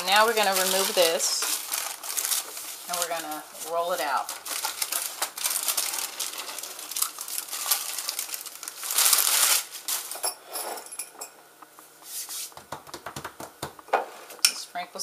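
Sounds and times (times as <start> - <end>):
wrapping crinkling and rustling: 0.0 - 10.3.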